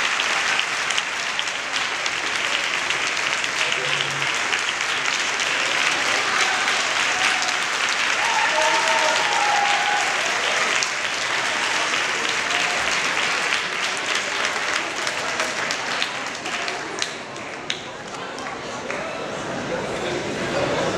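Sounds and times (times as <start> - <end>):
audience applauding: 0.0 - 19.2.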